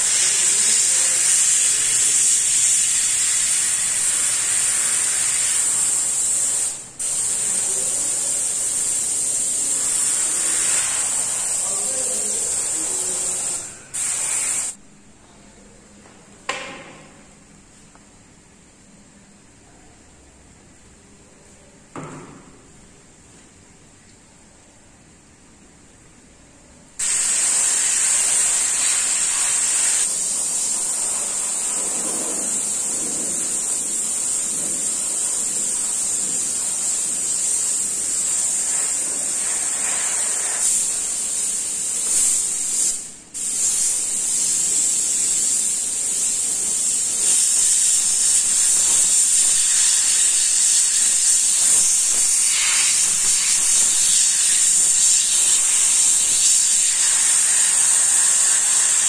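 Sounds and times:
airbrush hissing: 0:00.0 - 0:14.8, 0:27.0 - 0:59.0.

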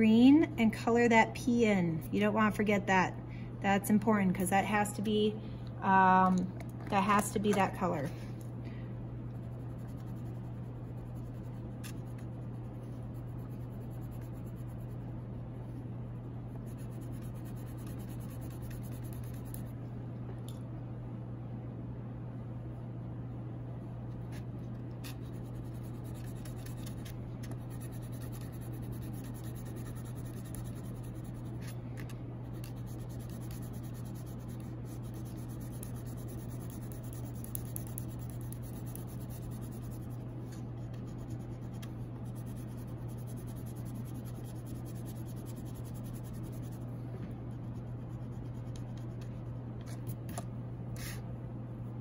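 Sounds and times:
crayon scratching on paper: 0:16.6 - 0:19.7, 0:25.0 - 0:31.7, 0:32.5 - 0:40.2, 0:40.8 - 0:46.8.

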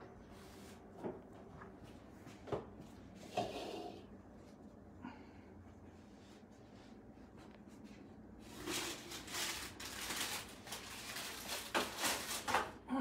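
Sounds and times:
parchment paper rustling: 0:06.7 - 0:12.8.

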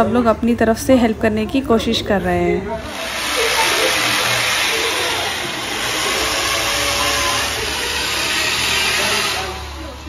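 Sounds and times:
power drill drilling into wall: 0:02.8 - 0:10.0.

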